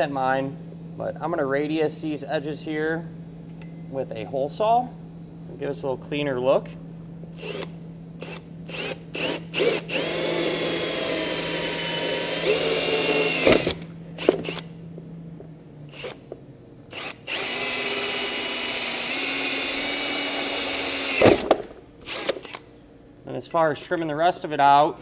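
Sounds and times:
cordless drill cutting plastic: 0:07.4 - 0:14.7, 0:16.9 - 0:22.6.

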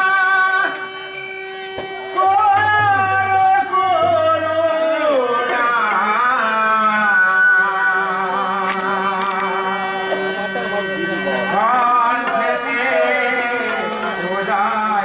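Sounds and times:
harmonium chord: 0:00.0 - 0:14.8
person singing: 0:02.2 - 0:10.0, 0:11.5 - 0:15.0.

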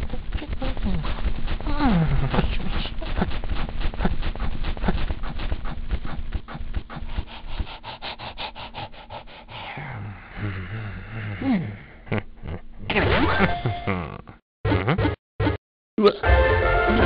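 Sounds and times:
rapid rubbing strokes: 0:00.0 - 0:09.5
low hum: 0:00.0 - 0:14.4.

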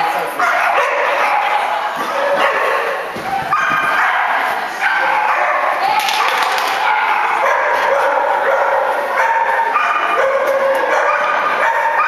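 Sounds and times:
dog barking and yipping: 0:00.4 - 0:12.0.

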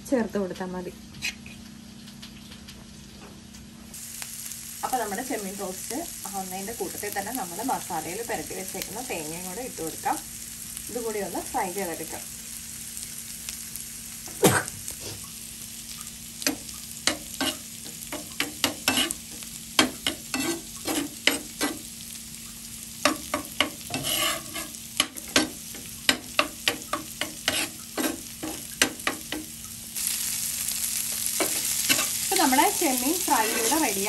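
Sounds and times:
food sizzling: 0:03.9 - 0:34.0
spatula scraping frying pan: 0:17.1 - 0:21.9, 0:23.2 - 0:29.3, 0:31.4 - 0:32.4, 0:33.1 - 0:34.0.

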